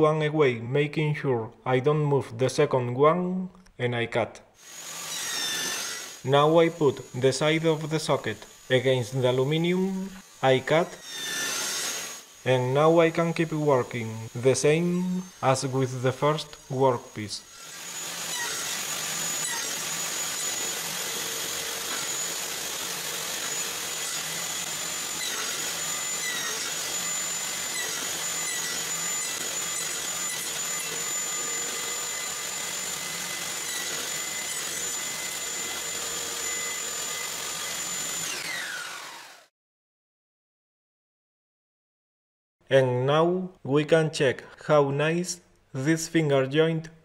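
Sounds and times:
table saw cutting wood: 4.6s - 39.5s.

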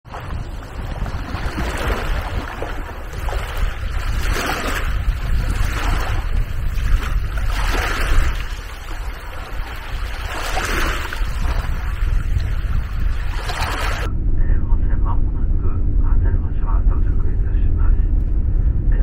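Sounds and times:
wind rumble on microphone: 0.0s - 19.0s
small waves washing onto beach: 0.1s - 14.1s.

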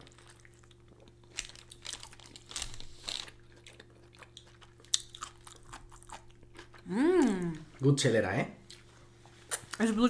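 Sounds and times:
wrapping crinkling: 1.2s - 3.4s.

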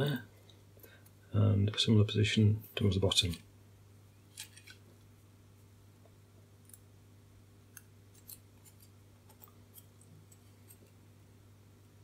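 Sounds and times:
low steady hum: 0.0s - 12.0s
ticks and scrapes of handling: 4.3s - 4.8s, 8.1s - 11.0s.

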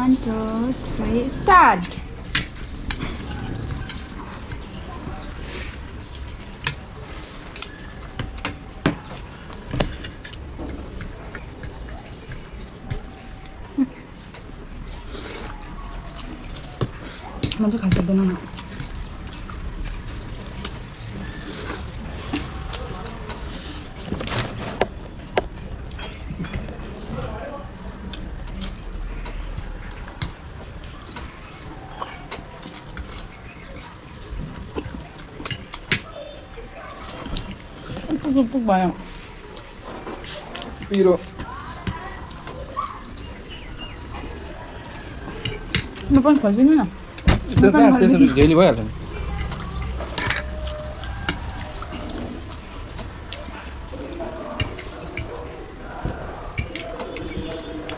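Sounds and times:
cutlery clinking on plates: 49.3s - 52.1s.

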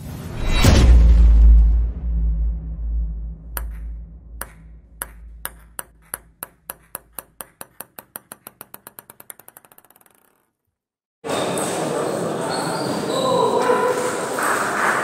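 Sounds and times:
deep rumble: 0.6s - 5.4s
table tennis ball bouncing: 3.6s - 10.7s.

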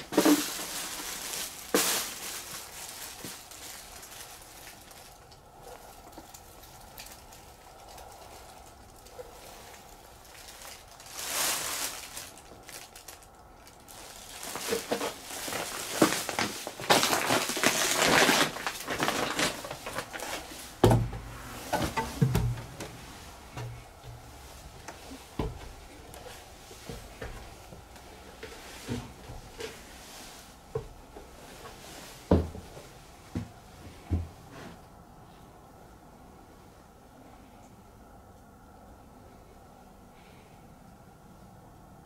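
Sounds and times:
footsteps crunching over debris: 0.0s - 34.3s
dull wooden thumps: 20.8s - 25.9s.

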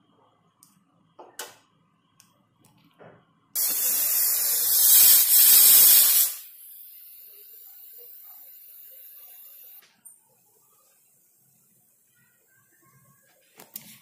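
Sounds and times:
pressure cooker steam hiss: 3.6s - 9.8s.

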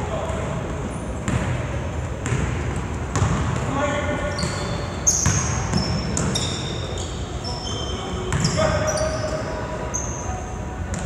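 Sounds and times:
sneakers squeaking: 0.2s - 11.0s
ball bouncing: 2.2s - 3.7s.

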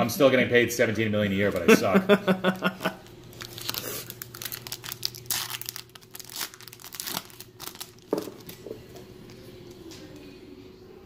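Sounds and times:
foil wrapper tearing and crinkling: 3.2s - 8.6s.

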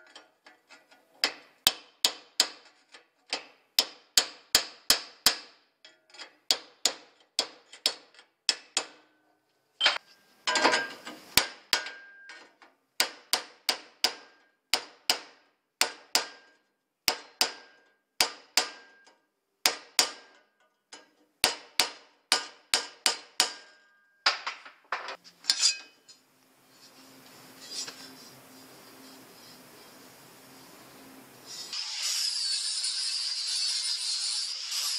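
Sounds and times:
hammer striking sheet metal: 13.0s - 20.4s, 21.0s - 24.6s.

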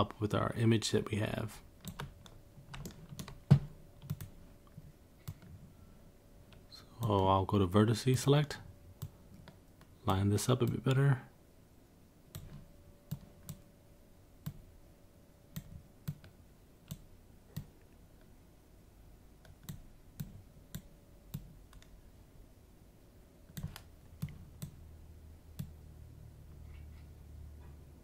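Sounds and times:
faint low hum: 0.0s - 28.0s
mouse and keyboard clicks: 4.0s - 4.4s.

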